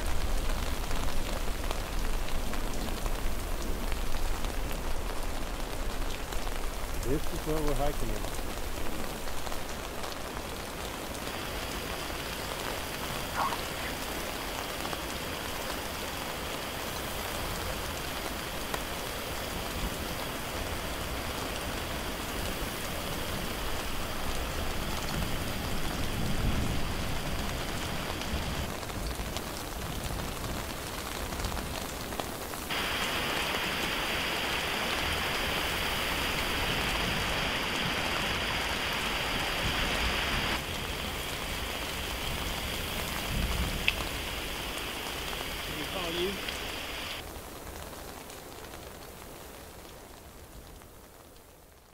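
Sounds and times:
water rushing over rocks: 6.5 - 28.8, 32.7 - 47.3.

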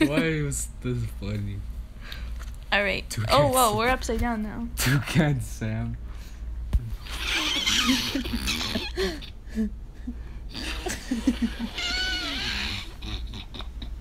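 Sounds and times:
young women laughing: 0.0 - 0.3, 7.1 - 14.0.

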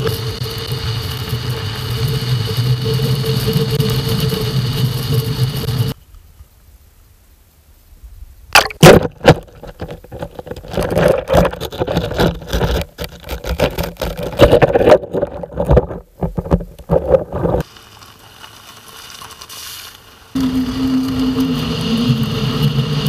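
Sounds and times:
hiss: 0.0 - 6.0, 19.4 - 23.0
gravel crunching: 8.6 - 23.0
camera handling knocks and scrapes: 9.0 - 17.6.

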